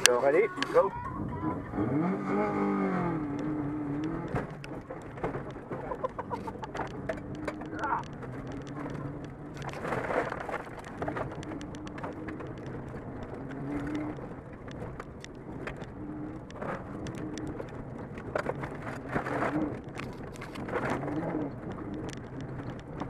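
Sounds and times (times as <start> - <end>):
car engine revving: 0.0 - 23.0
gravel pinging against underbody: 1.8 - 23.0.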